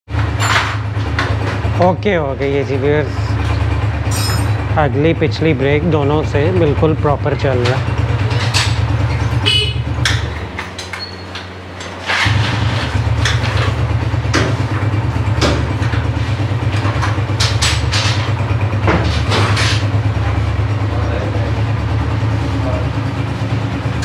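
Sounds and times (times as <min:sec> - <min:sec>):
motorcycle engine idling: 0:00.1 - 0:10.6, 0:11.2 - 0:24.0.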